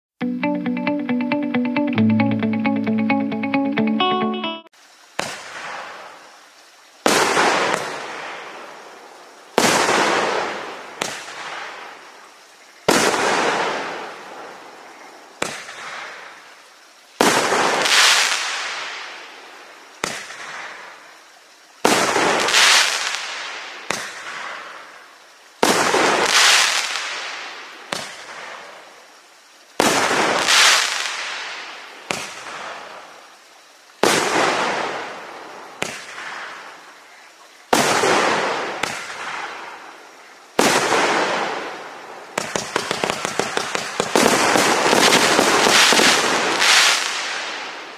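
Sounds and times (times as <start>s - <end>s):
fireworks crackling: 5.1s - 6.3s, 7.0s - 16.6s, 17.2s - 21.2s, 21.8s - 29.0s, 29.8s - 33.3s, 34.0s - 47.9s
fireworks bangs: 7.0s - 8.6s, 9.6s - 11.9s, 12.9s - 14.5s, 17.2s - 19.2s, 20.0s - 21.0s, 21.8s - 24.8s, 25.6s - 28.7s, 29.8s - 33.0s, 34.0s - 35.2s, 35.8s - 36.7s, 37.7s - 39.9s, 40.6s - 47.9s.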